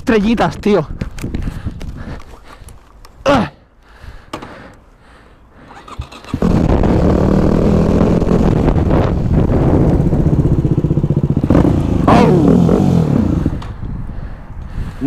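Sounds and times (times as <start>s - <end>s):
motorcycle engine running: 6.0s - 13.6s.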